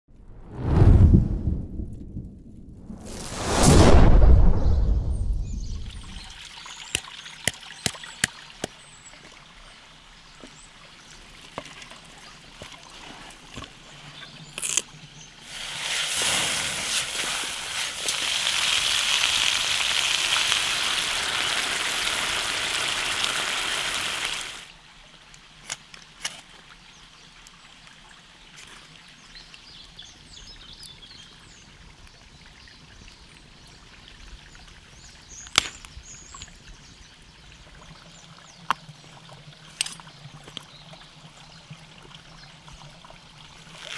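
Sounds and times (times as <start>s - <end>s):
stream trickling: 5.5s - 43.9s.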